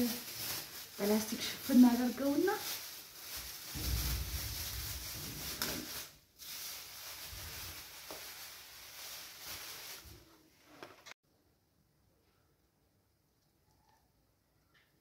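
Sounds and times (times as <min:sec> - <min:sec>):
plastic bag rustling: 0:00.0 - 0:11.2.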